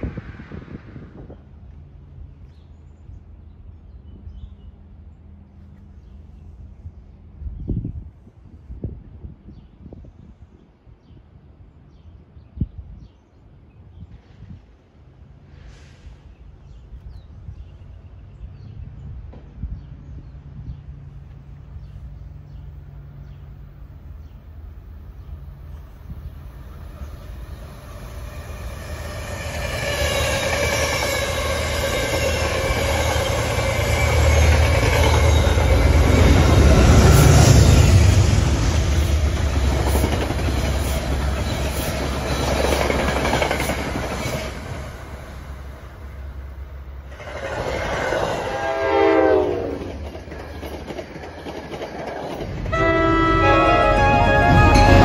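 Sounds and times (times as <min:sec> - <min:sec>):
train wheels clacking: 0:28.8 - 0:44.8, 0:49.7 - 0:55.0
train horn: 0:48.3 - 0:49.9, 0:52.7 - 0:55.0.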